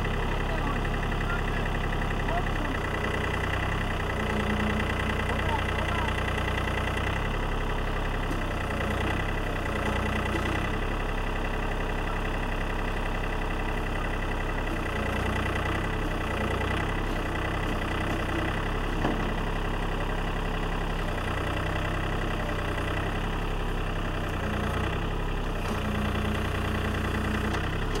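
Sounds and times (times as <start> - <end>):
tractor diesel engine running: 0.0 - 28.0.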